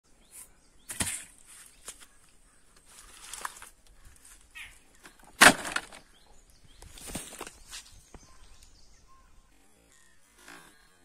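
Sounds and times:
rustling leaves and grass: 0.2s - 11.0s
pickaxe thudding into ground: 0.9s - 1.4s, 5.4s - 6.0s.

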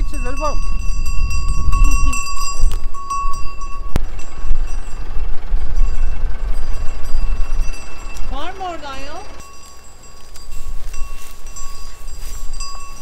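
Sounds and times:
wind rumbling on microphone: 0.0s - 8.8s
steady high ringing: 0.0s - 13.0s.

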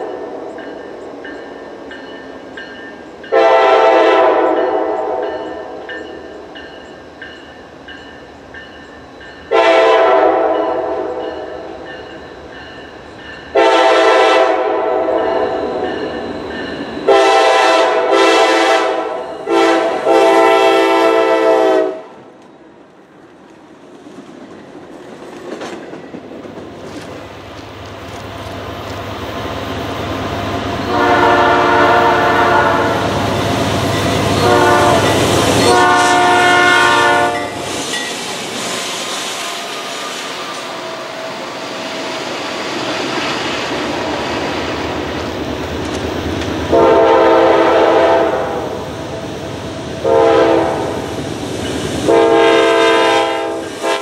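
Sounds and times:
locomotive air horn blasts: 3.3s - 5.3s, 9.5s - 11.2s, 13.5s - 15.5s, 17.1s - 22.1s, 30.9s - 33.1s, 34.4s - 37.6s, 46.7s - 48.7s, 50.0s - 51.0s, 52.0s - 54.0s.

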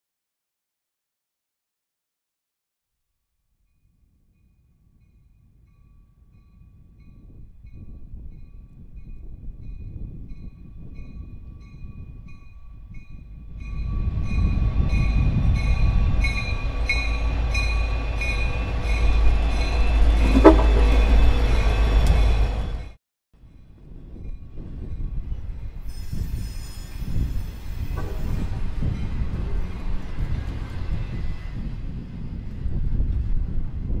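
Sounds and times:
diesel locomotive engine rumble: 9.3s - 23.0s, 24.1s - 34.0s
locomotive bell ringing: 13.6s - 22.9s
train wheel squeal: 13.6s - 23.0s, 25.1s - 32.6s.

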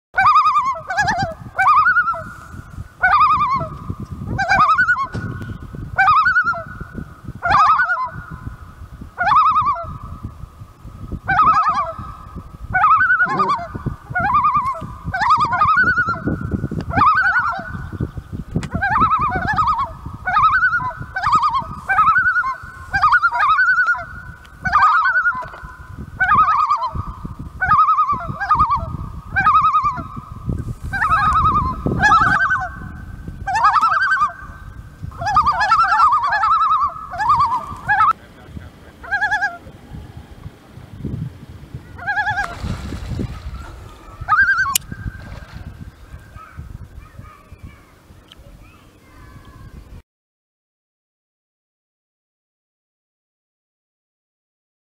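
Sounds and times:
loons calling: 0.2s - 5.4s, 11.3s - 40.0s, 41.9s - 48.4s.

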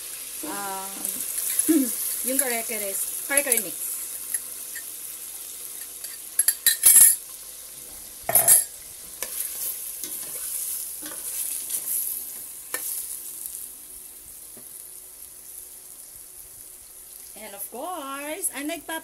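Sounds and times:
meat and sauce sizzling in a pot: 0.0s - 19.0s
metal spoon stirring: 5.8s - 7.2s, 8.3s - 11.9s.

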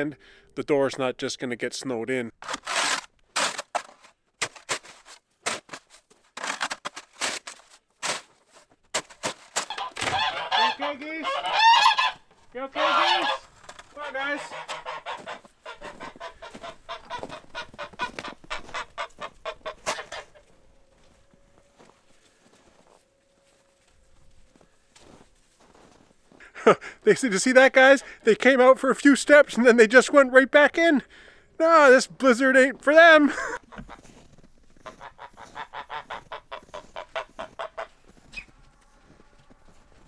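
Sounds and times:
snow shovel scraping snow: 2.4s - 9.8s
geese honking: 9.6s - 26.0s, 31.8s - 40.0s.

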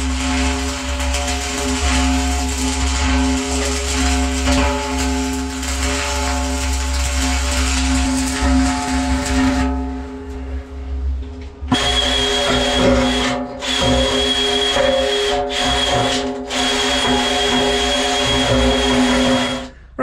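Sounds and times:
arc welding crackling: 0.0s - 10.6s, 11.7s - 19.7s
angle grinder whine: 0.0s - 19.8s.

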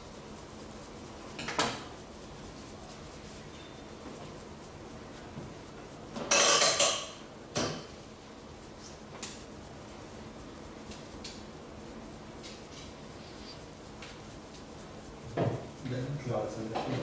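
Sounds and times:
knock: 15.3s - 15.7s.

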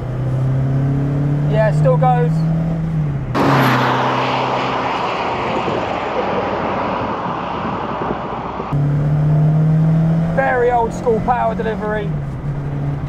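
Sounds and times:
road noise: 0.0s - 13.0s
car engine driving past: 2.5s - 10.3s.

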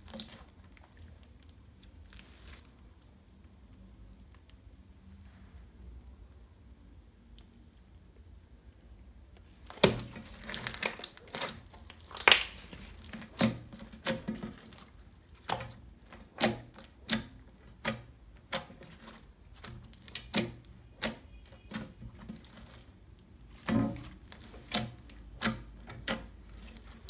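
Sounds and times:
slime popping and squelching: 9.5s - 27.0s.

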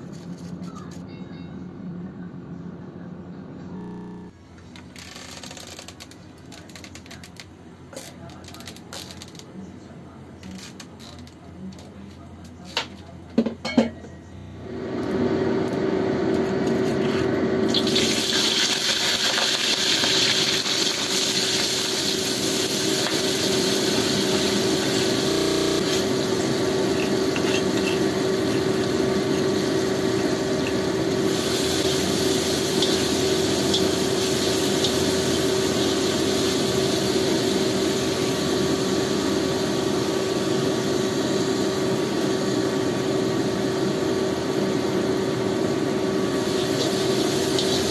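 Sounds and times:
spice paste sizzling in oil: 17.7s - 47.9s.

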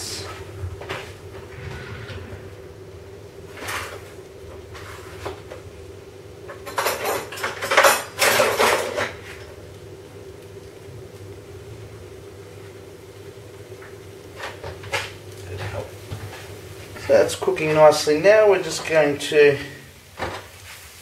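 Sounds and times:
faint steady hum: 0.0s - 20.5s
dishes and utensils clattering: 6.5s - 9.4s.

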